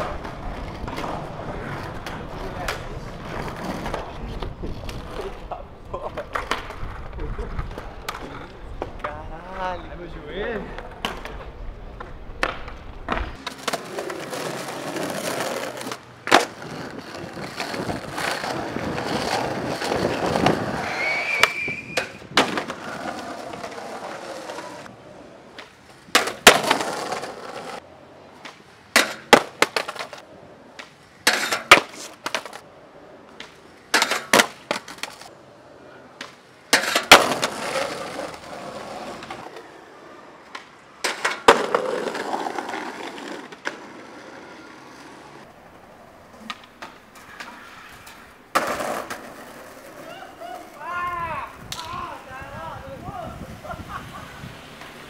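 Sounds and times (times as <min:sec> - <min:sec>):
skateboard tail popping: 0:00.0 - 0:09.2, 0:10.8 - 0:24.9, 0:25.5 - 0:32.6, 0:33.2 - 0:35.3, 0:36.1 - 0:39.8, 0:40.4 - 0:50.8
skateboard wheels rolling on concrete: 0:00.0 - 0:55.0
skateboard slamming down: 0:12.4 - 0:24.9, 0:25.6 - 0:27.8, 0:28.4 - 0:30.2, 0:31.2 - 0:32.6, 0:33.4 - 0:35.3, 0:36.2 - 0:39.5, 0:40.5 - 0:44.0, 0:46.4 - 0:49.7.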